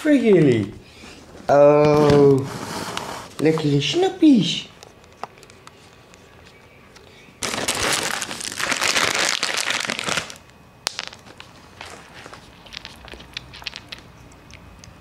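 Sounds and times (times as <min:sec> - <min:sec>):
treat packet crinkling: 0:04.9 - 0:14.7.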